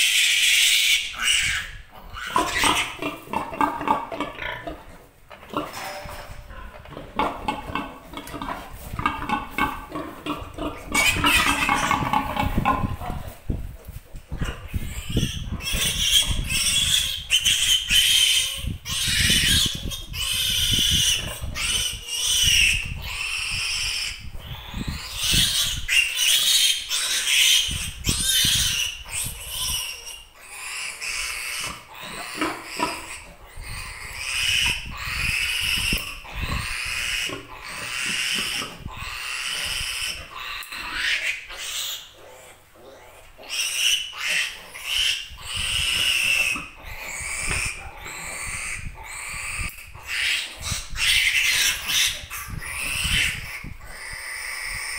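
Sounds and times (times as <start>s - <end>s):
piglet squealing shrilly: 0.0s - 3.1s, 10.8s - 12.7s, 14.7s - 42.1s, 43.4s - 54.9s.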